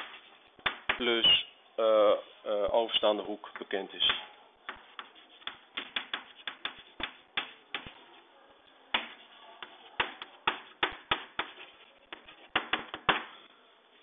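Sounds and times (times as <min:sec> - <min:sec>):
chalk tapping on blackboard: 0:00.0 - 0:01.1, 0:03.6 - 0:08.0, 0:08.9 - 0:13.4.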